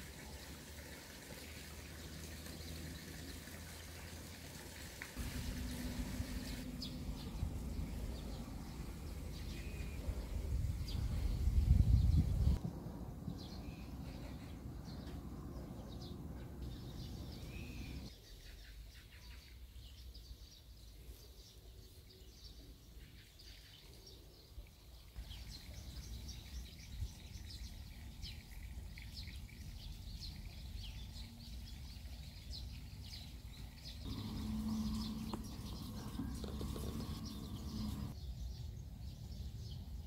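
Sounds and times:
low outdoor rumble: 5.2 - 18.1, 33.5 - 38.2
small birds chirping: 5.3 - 12.6, 13.3 - 40.0.

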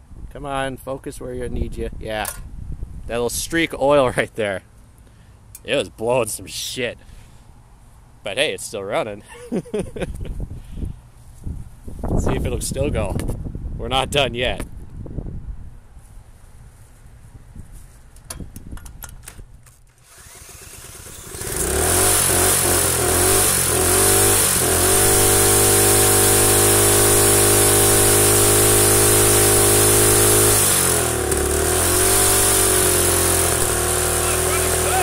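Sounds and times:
small engine running: 20.0 - 35.0.

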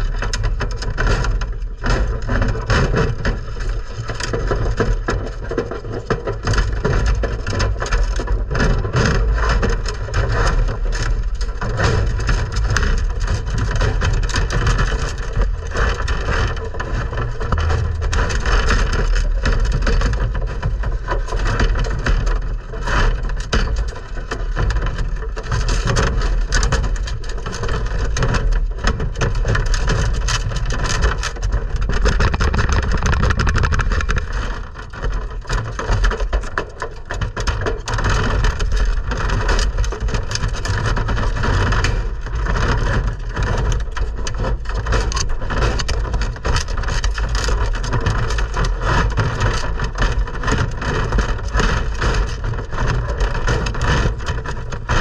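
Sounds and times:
thumps against camera: 32.0 - 34.6.

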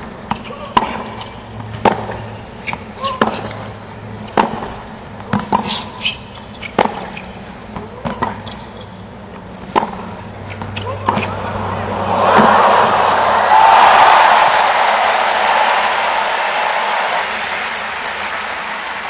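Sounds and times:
steady background hum: 0.0 - 19.0
racket hitting tennis ball: 0.3 - 8.4, 9.6 - 12.9.

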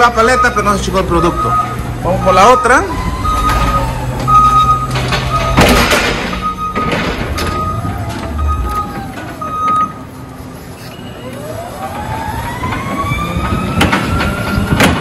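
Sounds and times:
warning alarm beeps: 0.0 - 10.1
forklift drive whine: 0.0 - 15.0.

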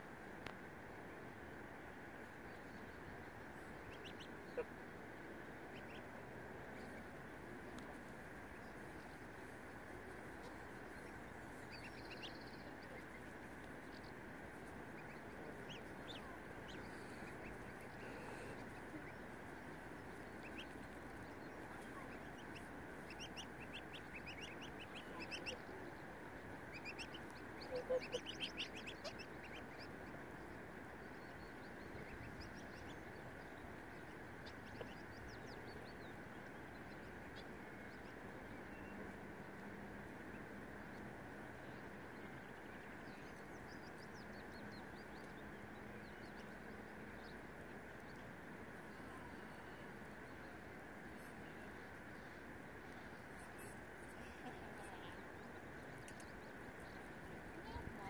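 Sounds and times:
steady background hiss: 0.0 - 58.0
goslings peeping: 3.0 - 50.3, 51.0 - 58.0
goose call: 27.6 - 29.2.

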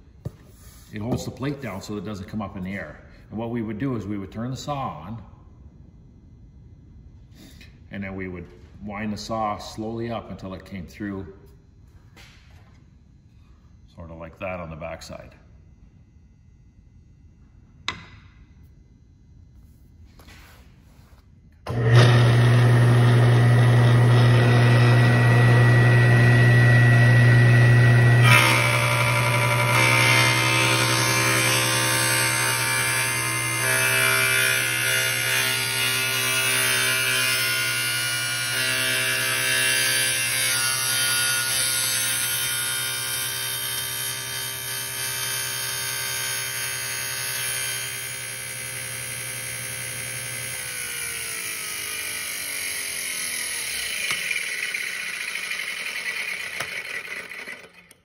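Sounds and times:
saw blade cutting slot: 21.7 - 58.0
table saw running: 21.7 - 58.0.

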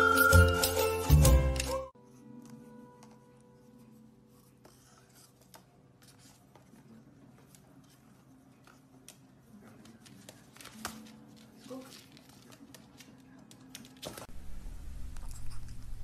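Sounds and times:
low steady hum: 14.3 - 16.0.

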